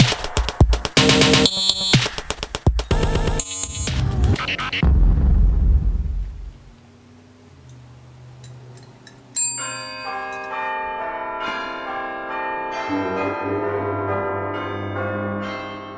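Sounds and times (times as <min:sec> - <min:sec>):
desk bell ringing: 0:09.2 - 0:15.9.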